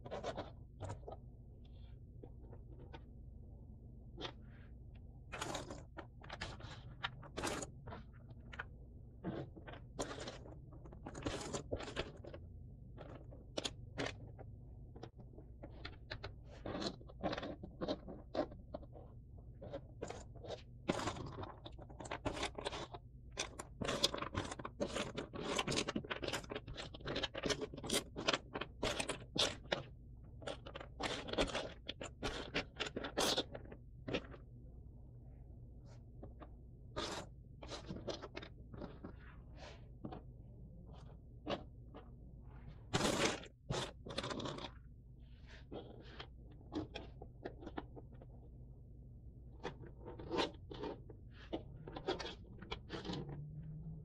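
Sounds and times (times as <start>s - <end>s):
puzzle pieces scraping: 0.0s - 1.2s, 5.3s - 12.4s, 15.0s - 34.4s, 36.2s - 40.3s, 42.7s - 48.3s, 49.6s - 54.0s.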